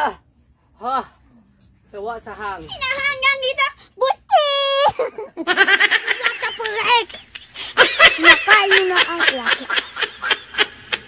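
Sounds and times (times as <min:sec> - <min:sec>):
children giggling: 0:04.8 - 0:11.0.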